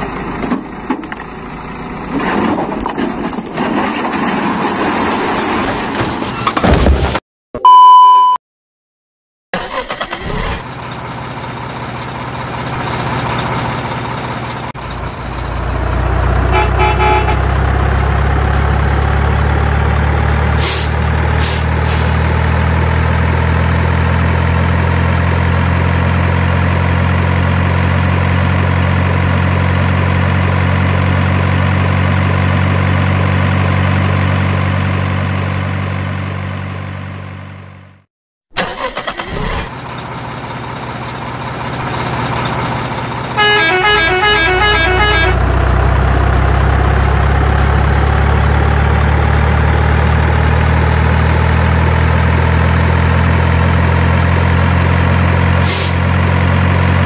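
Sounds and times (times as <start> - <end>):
diesel truck engine whining: 9.6 - 57.0
air-brake hisses: 20.6 - 22.2, 55.6 - 56.0.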